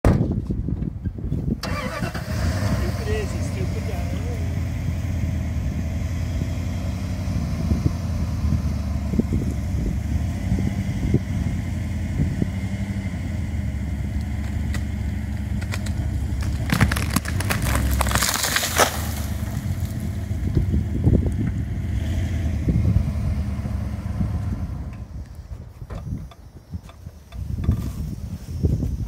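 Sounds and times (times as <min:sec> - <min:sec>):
truck engine running under load: 0:01.6 - 0:28.3
branches cracking and snapping: 0:14.2 - 0:21.5.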